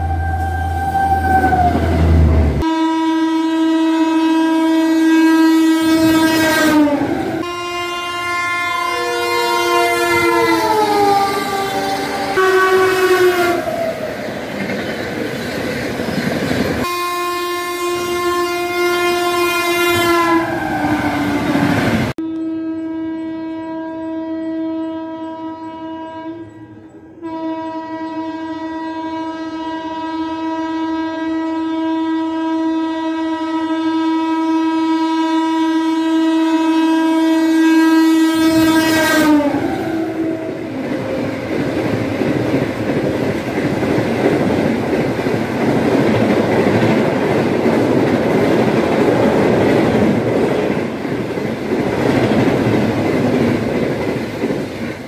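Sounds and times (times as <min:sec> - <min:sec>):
train horn blasts: 0:00.0 - 0:14.0, 0:16.8 - 0:42.6
rushing train wheels: 0:08.1 - 0:16.9, 0:19.3 - 0:22.2, 0:38.1 - 0:55.0.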